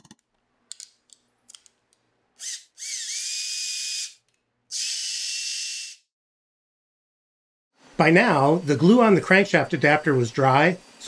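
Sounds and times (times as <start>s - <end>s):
cordless drill spinning: 2.4s - 6.0s.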